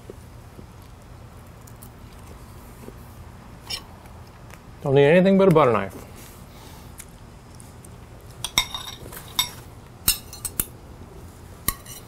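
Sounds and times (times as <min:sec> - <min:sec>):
knife clinking and scraping on plate: 0:08.4 - 0:10.7, 0:11.7 - 0:12.0.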